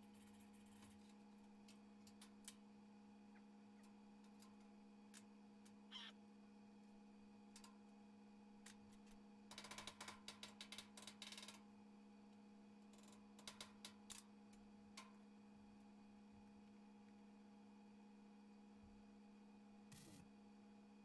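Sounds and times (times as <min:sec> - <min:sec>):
steady low hum: 0:00.0 - 0:09.5.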